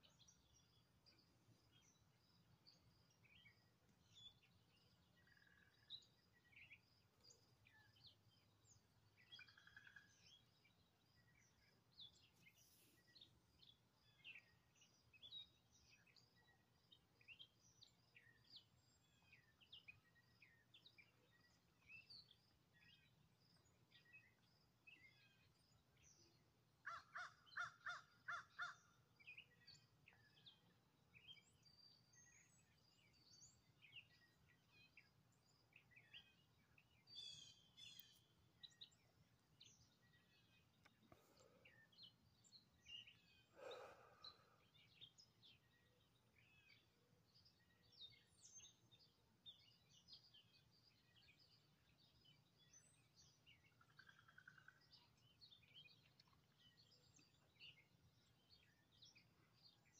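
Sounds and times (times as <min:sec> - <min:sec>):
birds chirping: 0:23.6 - 0:59.9.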